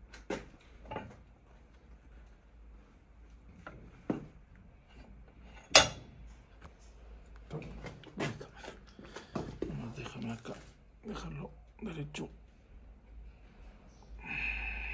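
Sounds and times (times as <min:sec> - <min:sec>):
metal tools knocking and clicking: 0:05.6 - 0:06.1.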